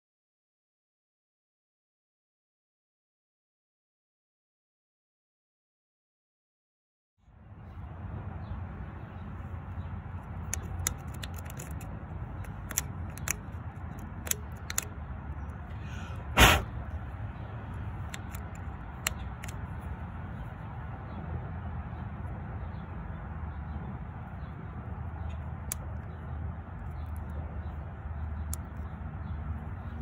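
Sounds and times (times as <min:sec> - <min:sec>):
screwdriver clicking plastic latch: 0:10.6 - 0:14.9.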